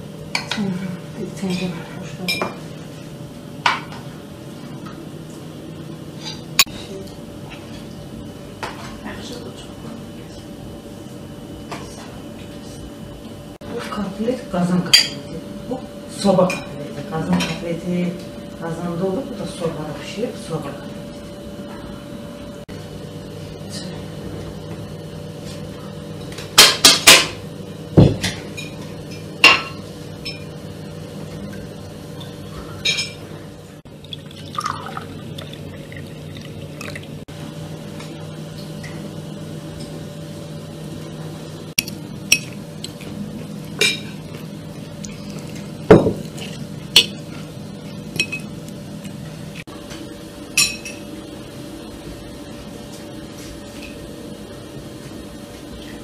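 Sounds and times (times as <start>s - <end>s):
drink pouring into glass: 34.0s - 37.2s.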